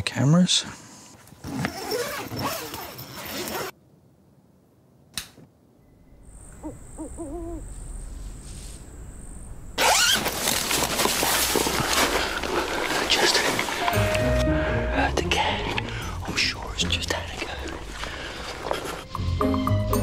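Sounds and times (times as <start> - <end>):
faint high whine: 5.7 - 10.2
owl hooting: 6.2 - 8.4.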